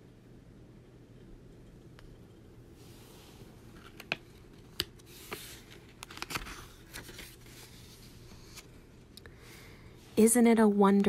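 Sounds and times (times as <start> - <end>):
paper page rustling: 3.7 - 8.8.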